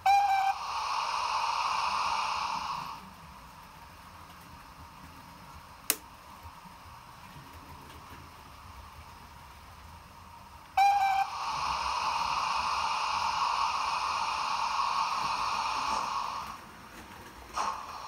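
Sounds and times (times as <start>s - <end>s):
steam whistle: 0.0s - 3.0s, 10.8s - 16.5s
steam hissing: 0.0s - 7.1s, 8.2s - 18.0s.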